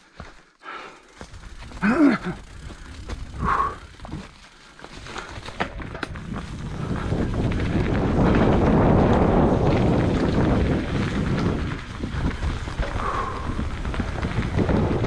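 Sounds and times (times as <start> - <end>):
bike tyre rumble on trail: 0.0 - 15.0
bike clicks and knocks: 0.2 - 15.0
wind on microphone: 5.7 - 15.0.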